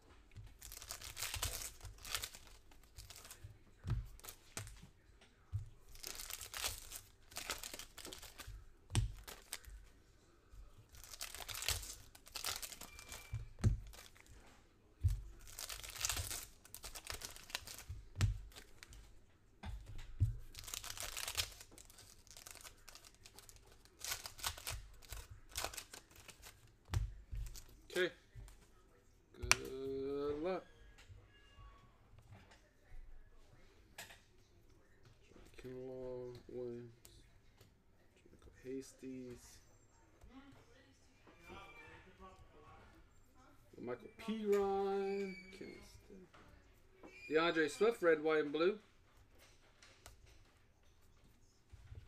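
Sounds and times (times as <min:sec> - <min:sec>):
foil wrappers tearing and crinkling: 0:00.6 - 0:03.4, 0:05.9 - 0:09.7, 0:10.9 - 0:14.3, 0:15.4 - 0:18.9, 0:20.3 - 0:26.6.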